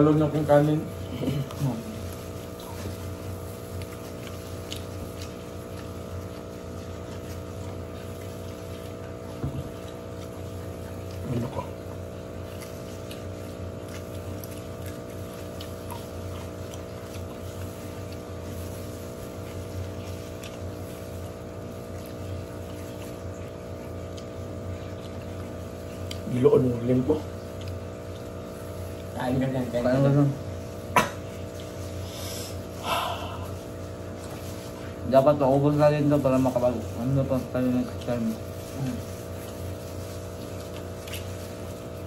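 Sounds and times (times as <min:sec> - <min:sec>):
steady mechanical hum: 0:00.0 - 0:42.0
gloved hands rustling rice: 0:31.7 - 0:42.0.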